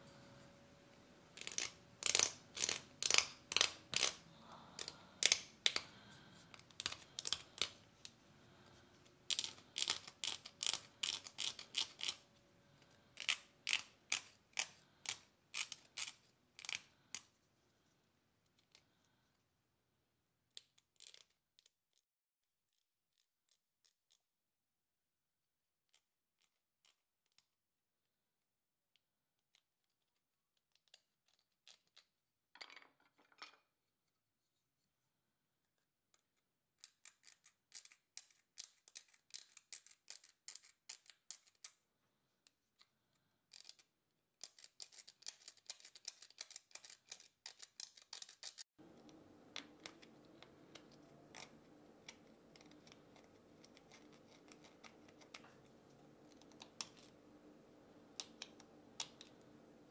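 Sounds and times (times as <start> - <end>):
faint steady hum: 0.0 - 15.5, 48.8 - 59.9
carving blade scraping a nut: 1.4 - 4.2, 9.3 - 12.2, 13.2 - 17.3, 36.8 - 41.7, 43.5 - 48.7, 49.6 - 57.1.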